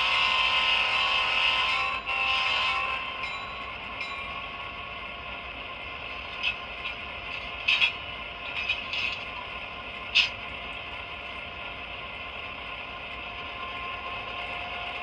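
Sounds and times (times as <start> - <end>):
model train diesel horn: 0.0 - 3.3, 13.6 - 15.0.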